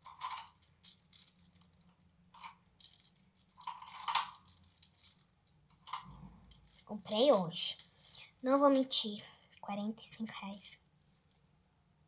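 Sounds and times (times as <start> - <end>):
small items clattering on a tabletop: 0.0 - 9.6.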